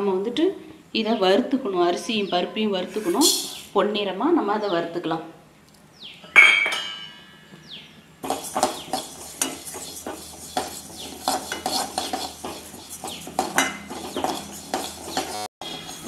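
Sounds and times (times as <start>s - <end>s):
ringing metallic clang: 6.2s - 7.7s
spoon scraping lentils in metal pan: 8.2s - 16.0s.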